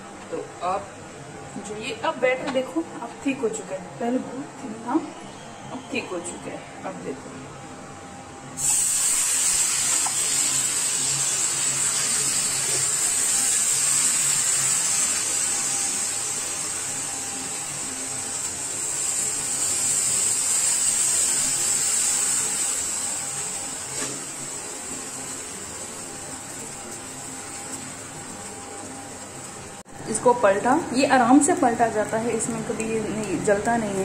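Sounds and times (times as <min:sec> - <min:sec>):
batter sizzling in a pan: 0:08.6 - 0:34.0.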